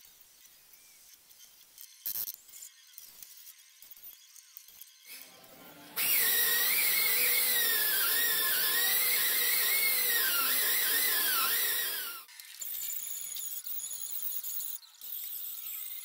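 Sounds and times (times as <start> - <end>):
pneumatic die grinder whine: 5.0 - 12.3.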